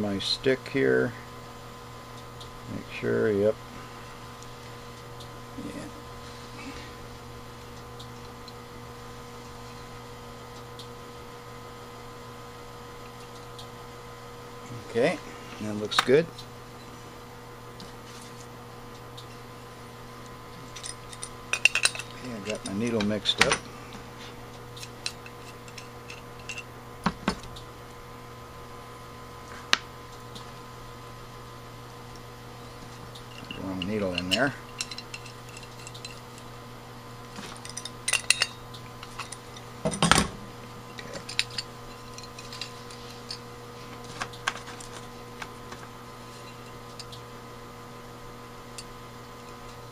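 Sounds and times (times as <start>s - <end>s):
electrical mains hum: 0.0s - 49.9s
metal parts knocking on workbench: 39.1s - 40.4s.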